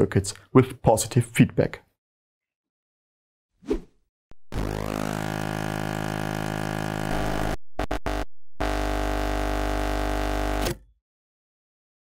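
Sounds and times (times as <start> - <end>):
synthesizer sting: 4.5 - 9.0.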